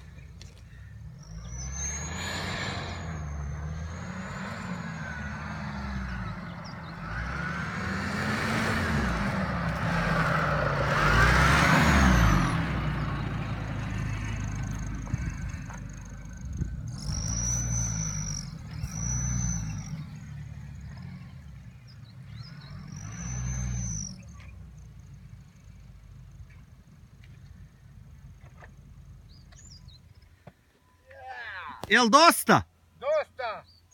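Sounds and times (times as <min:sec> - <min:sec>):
tyres churning through sand: 0:00.0 - 0:23.8
car engine revving under load: 0:00.0 - 0:30.4.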